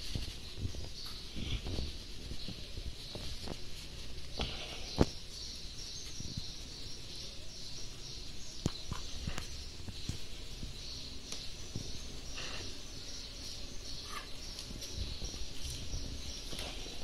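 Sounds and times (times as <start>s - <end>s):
tissue rustling on fur: 0.0s - 4.4s.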